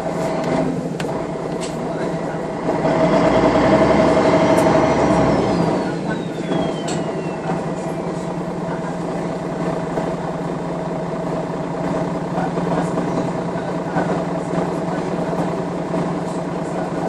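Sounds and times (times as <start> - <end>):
bus diesel engine hum: 0.0 - 17.0.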